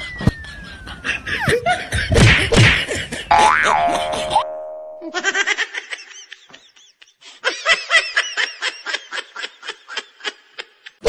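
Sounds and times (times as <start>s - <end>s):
snickering giggles: 0.4s - 3.3s.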